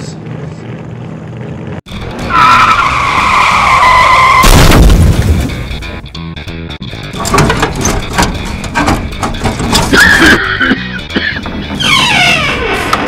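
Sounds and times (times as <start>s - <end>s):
car tyre squeal: 2.3s - 4.4s.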